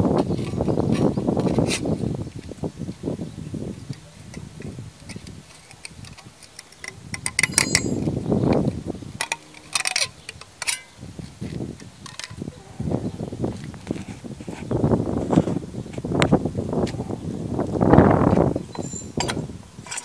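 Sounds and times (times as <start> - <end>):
steel bar clicking and scraping metal: 3.9 - 12.4, 18.7 - 20.0.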